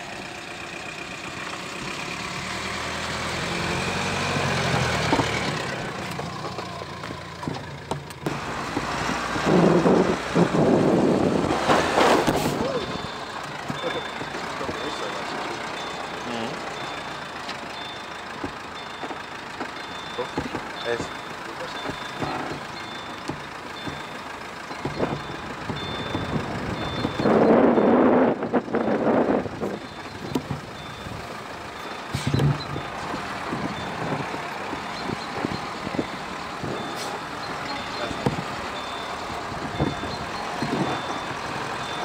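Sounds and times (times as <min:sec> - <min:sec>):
car driving on dirt track: 0:00.0 - 0:42.0
tyre and suspension knocks: 0:18.4 - 0:20.8, 0:21.8 - 0:27.2.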